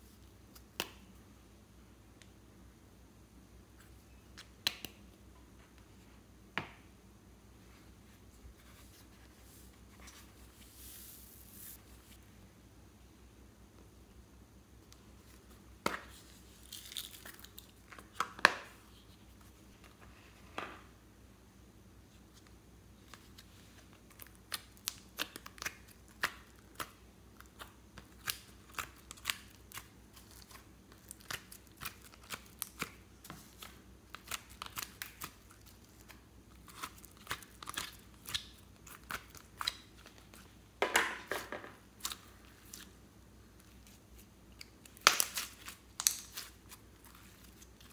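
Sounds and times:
slime crackling squish: 24.0 - 40.5, 43.7 - 47.9.

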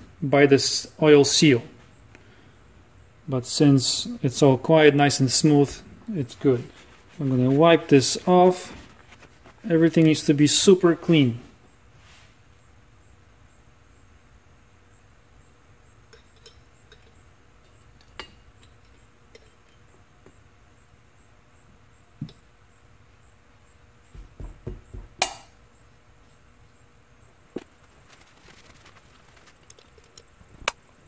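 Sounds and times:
dull knocks: 24.1 - 25.3.

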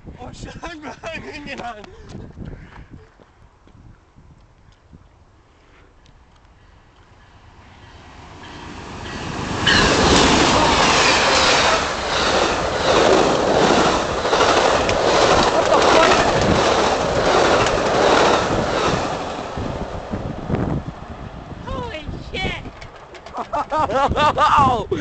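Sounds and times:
passenger train passing: 6.8 - 23.7
wheels clacking over rail joints: 8.2 - 20.1, 22.6 - 24.0.

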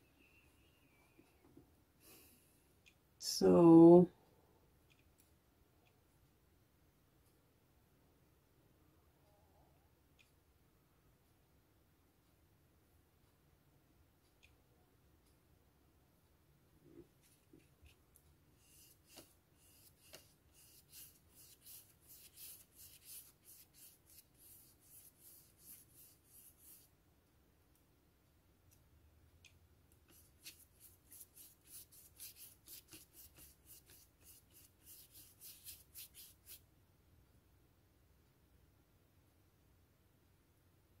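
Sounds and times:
paintbrush scrubbing on paper: 18.6 - 26.9, 30.1 - 36.6.

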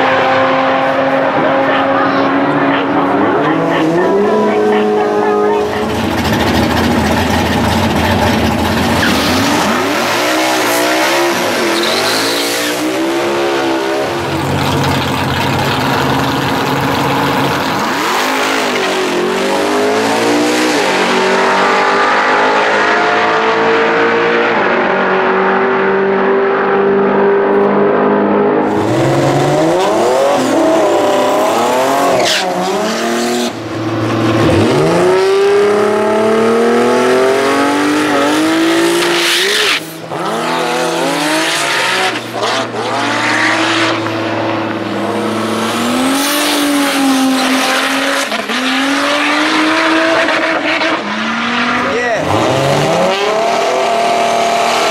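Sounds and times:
drag cars at full throttle: 0.0 - 54.9.

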